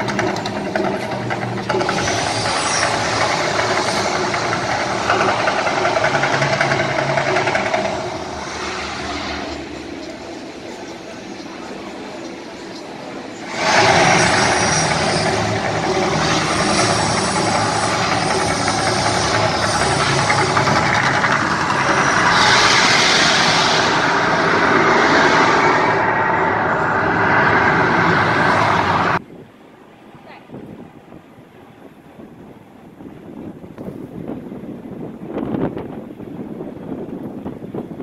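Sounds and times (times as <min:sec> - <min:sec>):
loud rushing fire effects: 0:00.0 - 0:11.1, 0:13.4 - 0:29.2.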